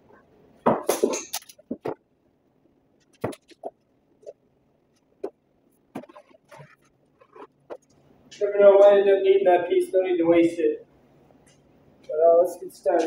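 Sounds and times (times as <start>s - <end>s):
vinyl film crackling: 0.0s - 2.1s, 2.8s - 8.9s.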